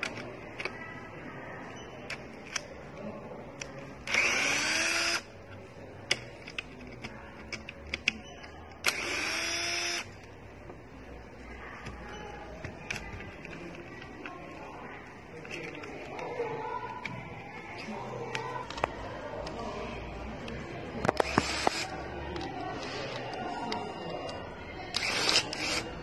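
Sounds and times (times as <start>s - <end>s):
electric screwdriver whining: 4.1s - 5.2s, 8.8s - 10.1s, 21.2s - 21.9s, 24.9s - 25.8s
screws and parts clicking: 4.1s - 5.2s, 8.8s - 10.0s, 21.1s - 22.5s, 24.9s - 26.0s.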